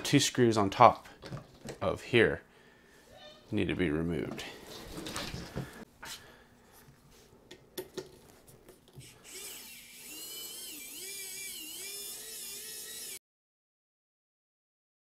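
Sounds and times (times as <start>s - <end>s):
electric screwdriver whining: 9.0s - 13.2s.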